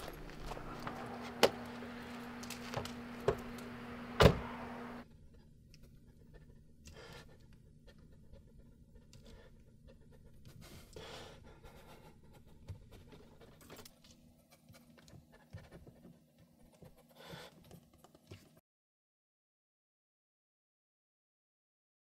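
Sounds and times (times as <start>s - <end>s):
steady hum: 0.0s - 5.0s
faint small movements: 0.0s - 11.0s
car door slamming: 0.6s - 5.0s
car door clicks: 4.1s - 4.8s.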